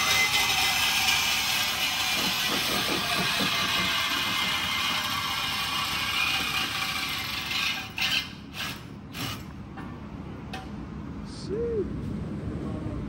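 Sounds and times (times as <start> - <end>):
tool whirring and hissing: 0.0 - 9.5
short clattering knocks: 2.0 - 5.1.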